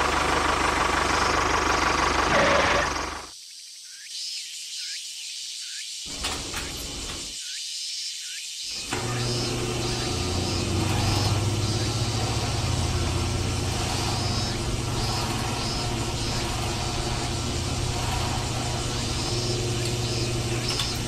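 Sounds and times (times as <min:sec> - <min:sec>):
small motor humming: 0:08.7 - 0:21.0.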